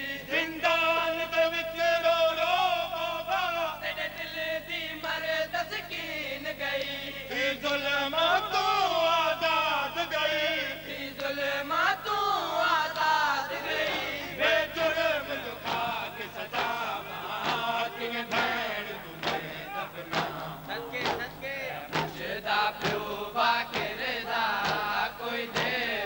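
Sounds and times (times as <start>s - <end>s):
man chanting into a microphone: 0.0s - 26.0s
men chanting a lament: 0.0s - 26.0s
chest-beating slaps: 15.6s - 26.0s.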